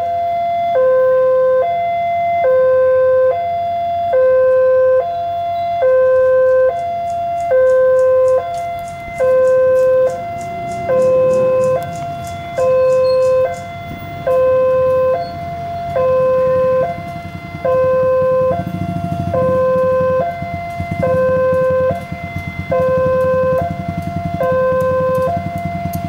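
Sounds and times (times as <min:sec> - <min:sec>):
two-tone railway warning alarm: 0:00.0 - 0:26.0
train rumbling and clicking: 0:06.8 - 0:17.7, 0:18.4 - 0:26.0.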